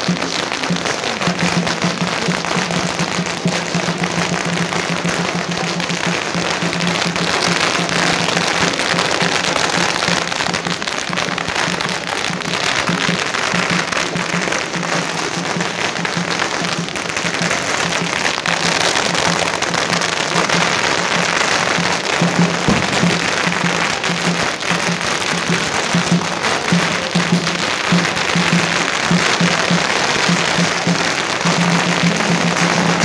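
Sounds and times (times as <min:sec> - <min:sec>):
firecrackers crackling: 0:00.0 - 0:33.0
low drumbeat: 0:22.2 - 0:24.3, 0:30.8 - 0:33.0.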